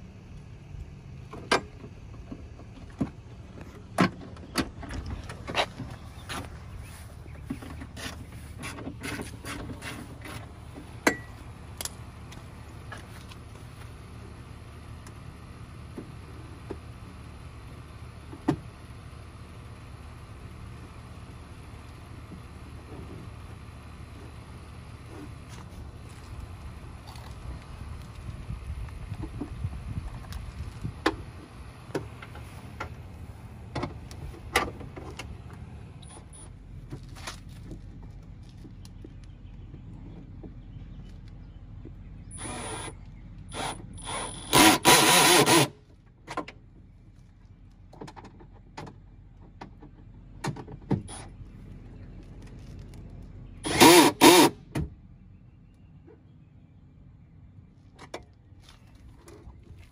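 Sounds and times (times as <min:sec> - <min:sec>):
steady low rumble: 0:00.0 - 0:44.6
wind rumble on microphone: 0:26.3 - 0:31.6
sharp clicks and knocks: 0:47.8 - 0:51.1.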